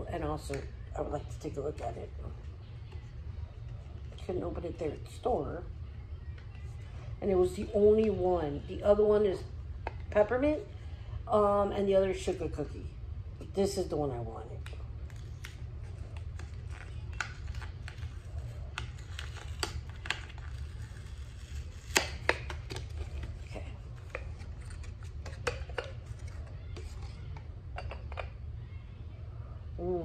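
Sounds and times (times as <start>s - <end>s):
packaging being opened: 15.0s - 23.4s.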